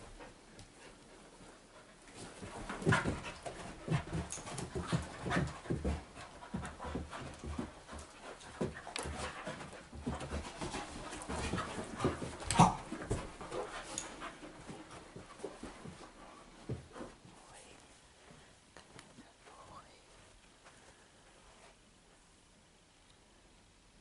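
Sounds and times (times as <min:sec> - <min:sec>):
dogs panting: 0:00.0 - 0:17.3
dogs scuffling and thumping: 0:00.0 - 0:17.6.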